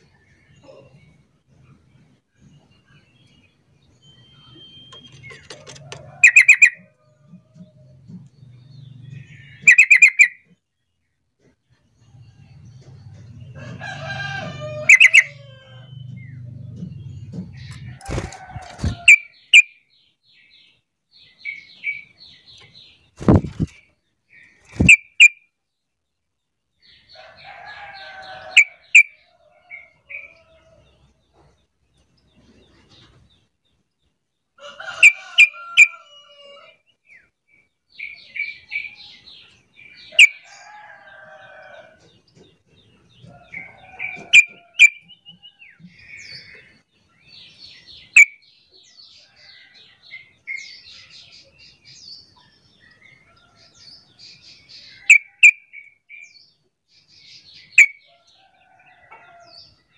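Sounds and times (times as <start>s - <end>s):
bulbul chattering calls: 4.1s - 6.8s, 9.1s - 10.5s.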